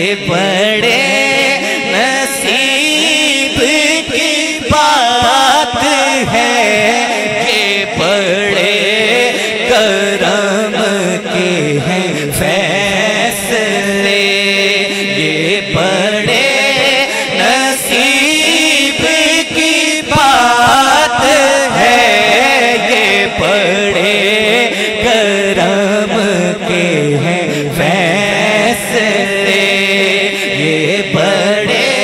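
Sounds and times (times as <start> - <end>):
man singing into a microphone: 0.0 - 32.0.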